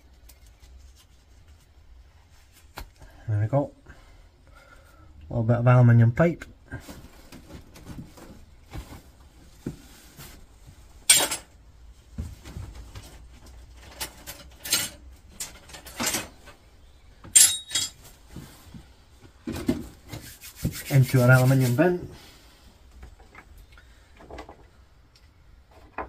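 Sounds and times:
scrap metal clinking and clattering: 11.0s - 11.5s, 13.8s - 16.4s, 17.3s - 18.1s
metal pipe dropping into bin: 11.1s - 11.5s, 17.3s - 18.0s.

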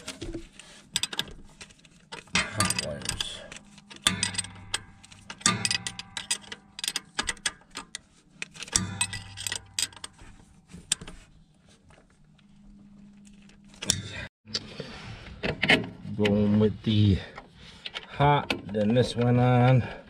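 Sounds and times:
wrench clicking on metal nut: 2.4s - 10.2s.

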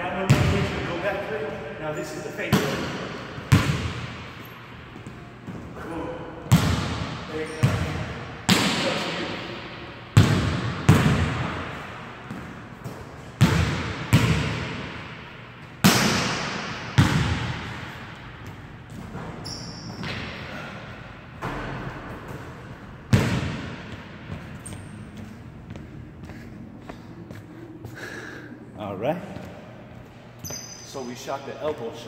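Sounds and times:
basketball bouncing on wooden floor: 12.3s - 14.6s, 23.1s - 24.9s.

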